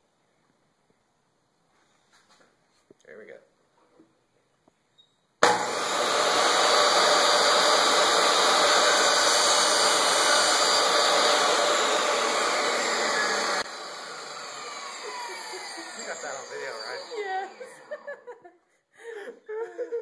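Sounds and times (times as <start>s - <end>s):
table saw running: 5.4s - 18.1s
table saw winding down whine: 5.4s - 18.2s.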